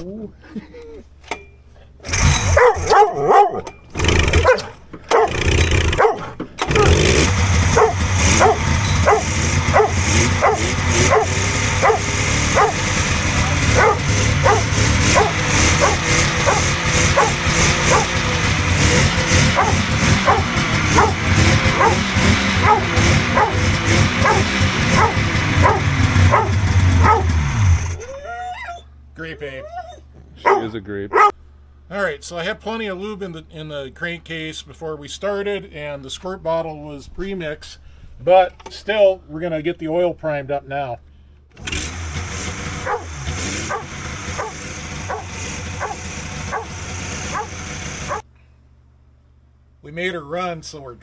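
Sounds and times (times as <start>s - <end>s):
snowmobile engine running: 2.1s - 28.0s, 41.7s - 48.2s
dog barking: 2.4s - 3.7s, 4.4s - 7.0s, 7.7s - 18.2s, 19.4s - 27.4s, 30.4s - 31.4s, 42.8s - 48.2s.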